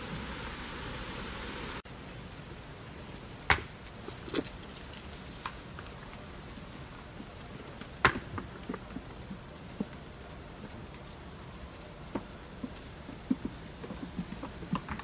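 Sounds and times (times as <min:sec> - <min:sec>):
goats butting heads: 0:05.4 - 0:15.0.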